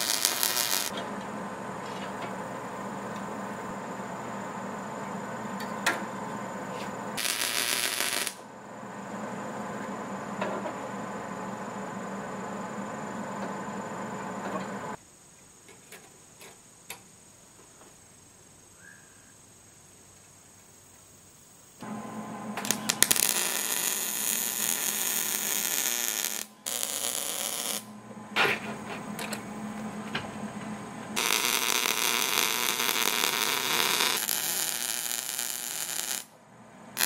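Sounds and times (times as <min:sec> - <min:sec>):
loud hiss: 0:00.0 - 0:00.9, 0:07.2 - 0:08.4, 0:22.6 - 0:27.9
background hum and hiss: 0:00.0 - 0:37.0.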